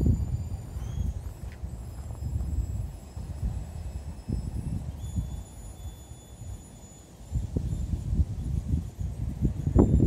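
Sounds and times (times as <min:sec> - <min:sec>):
footsteps on dry grass: 0:00.0 - 0:03.3
faint high steady whine: 0:00.0 - 0:10.0.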